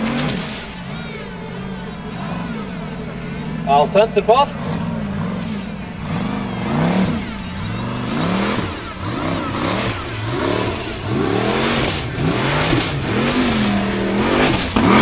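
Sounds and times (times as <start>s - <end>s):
race car engine revving: 0.0s - 15.0s
tyres churning dirt: 0.0s - 15.0s.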